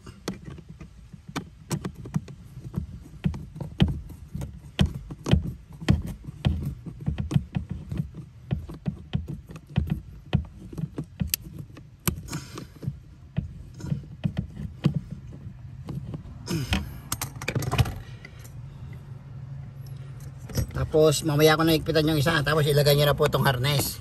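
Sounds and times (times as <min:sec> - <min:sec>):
low rumble of handling: 0:00.0 - 0:24.0
screwdriver clicks and knocks: 0:00.2 - 0:13.5.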